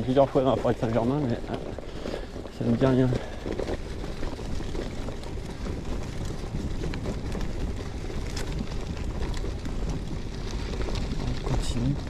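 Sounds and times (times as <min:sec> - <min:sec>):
bike tyres rolling on gravel: 0:00.0 - 0:12.0
small ticks: 0:00.7 - 0:12.0.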